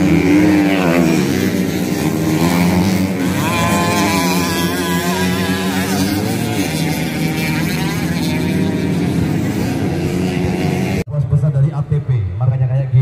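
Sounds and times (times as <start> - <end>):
dirt bike engines revving: 0.0 - 11.9.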